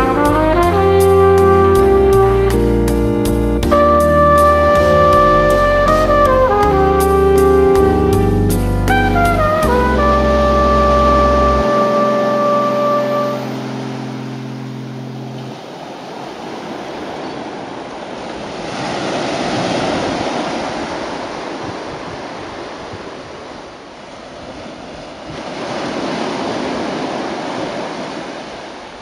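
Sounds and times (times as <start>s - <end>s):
held musical note: 0.0s - 16.0s
waves washing up beach: 3.7s - 8.2s, 9.6s - 29.0s.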